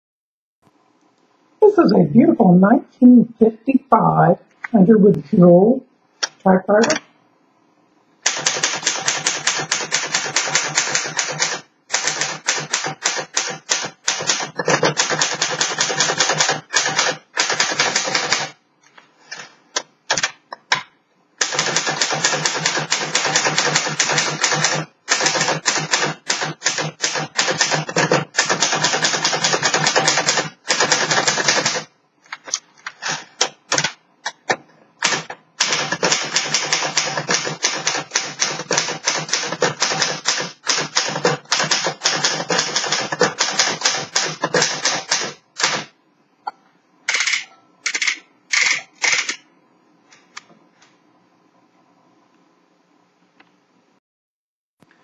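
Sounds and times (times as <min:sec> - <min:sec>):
manual typewriter typing: 0:08.2 - 0:18.6, 0:21.4 - 0:31.9, 0:35.0 - 0:45.9.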